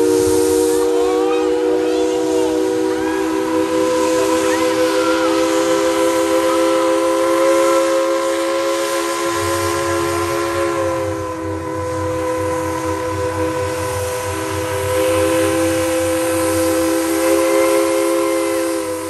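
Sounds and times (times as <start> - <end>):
locomotive low rumble: 0.0 - 19.0
steam hissing: 0.0 - 19.0
steam locomotive chime whistle: 0.0 - 19.0.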